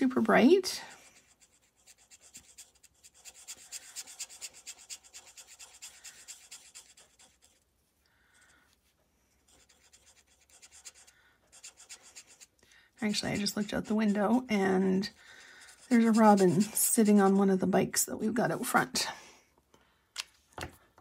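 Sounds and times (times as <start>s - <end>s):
marker scratching on cardstock: 1.0s - 7.6s, 9.5s - 17.4s.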